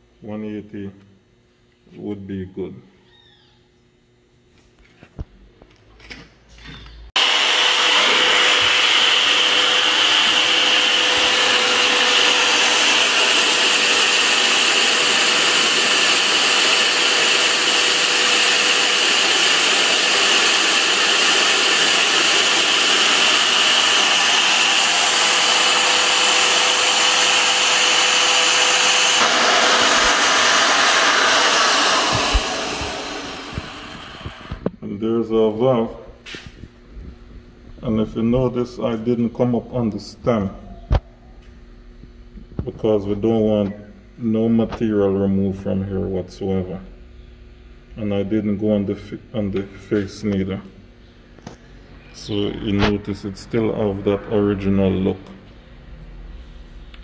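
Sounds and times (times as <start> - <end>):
electric drill whining: 7.2 - 34.7.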